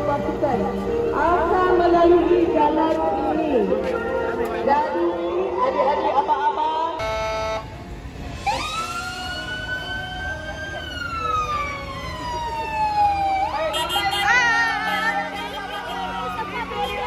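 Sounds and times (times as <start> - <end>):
emergency siren wailing: 7.0 - 7.7, 8.3 - 17.0
steady horn-like tone: 7.0 - 7.8.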